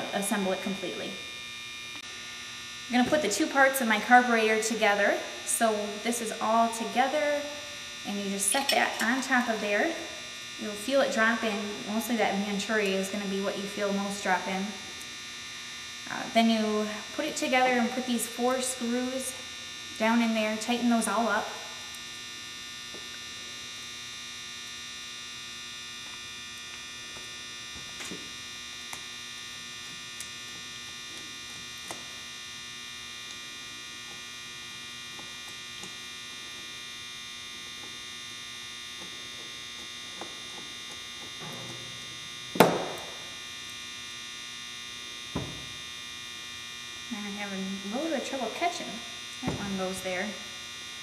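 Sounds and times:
electrical hum with whine: 0:00.0 - 0:51.0
sharp knock: 0:42.6 - 0:43.1.

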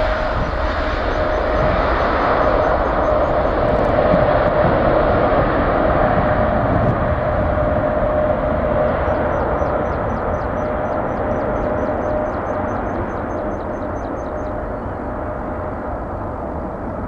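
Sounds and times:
jet engines at takeoff: 0:00.0 - 0:17.0.

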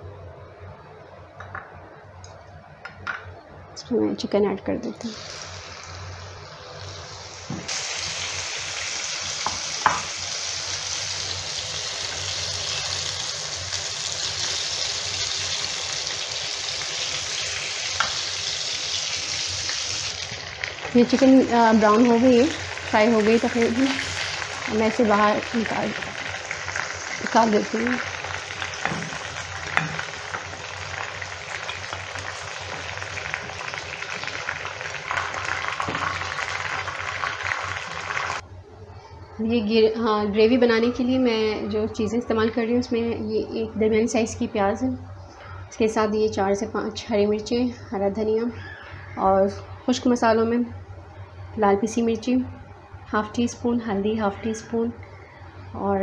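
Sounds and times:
chicken sizzling in hot oil: 0:05.1 - 0:38.4.

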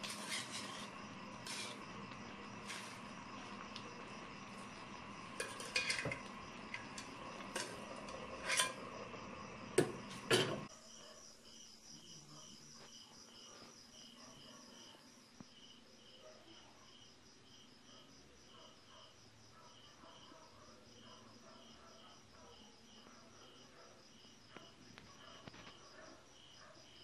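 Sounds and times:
metal utensil scraping a wok: 0:00.0 - 0:09.2, 0:09.8 - 0:10.7
cooking hiss: 0:00.0 - 0:10.7
crickets chirping: 0:00.0 - 0:27.0
metal lid clanking: 0:05.2 - 0:09.0, 0:09.8 - 0:10.7.

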